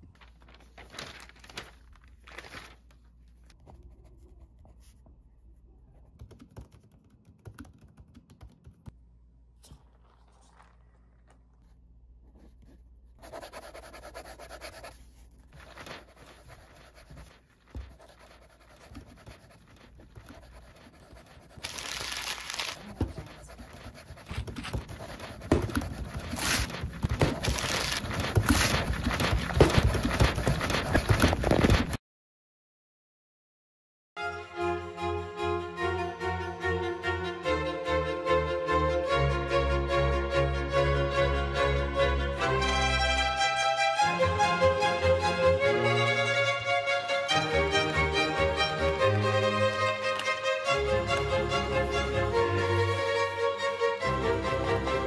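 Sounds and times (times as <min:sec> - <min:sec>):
paper rustling: 0:00.0 - 0:03.6, 0:13.3 - 0:32.0
keyboard typing: 0:06.2 - 0:08.9
pen scratching on paper: 0:12.3 - 0:32.0.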